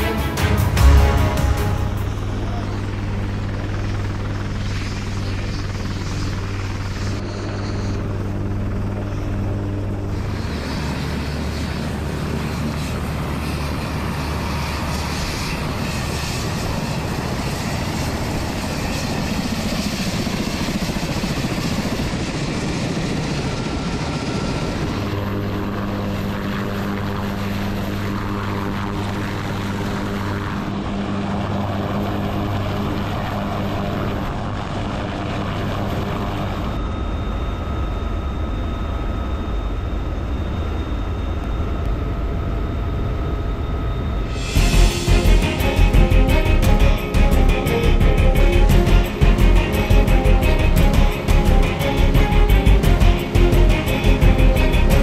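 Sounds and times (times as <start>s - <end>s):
helicopter engine and rotor drone: 0.0s - 55.0s.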